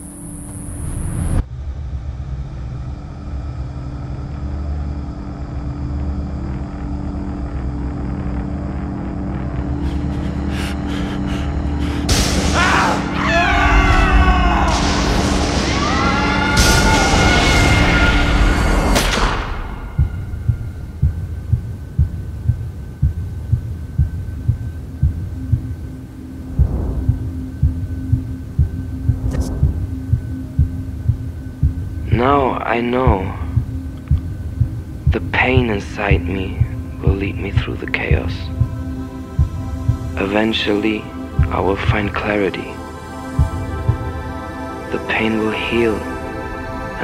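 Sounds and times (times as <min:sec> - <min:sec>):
low hum: 0:00.0 - 0:13.2, 0:18.4 - 0:45.2
low rumbling drone: 0:00.0 - 0:16.7, 0:18.3 - 0:45.1
heartbeat thumps: 0:09.7 - 0:12.6, 0:19.0 - 0:32.3, 0:33.1 - 0:40.3, 0:41.2 - 0:42.2, 0:43.3 - 0:44.3
crickets chirring: 0:19.8 - 0:46.8.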